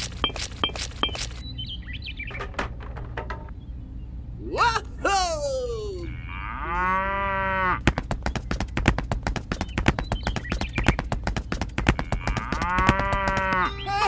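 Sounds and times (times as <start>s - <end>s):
cow mooing: 6.1s - 7.8s, 12.1s - 13.9s
hooves clip-clopping: 7.8s - 13.9s.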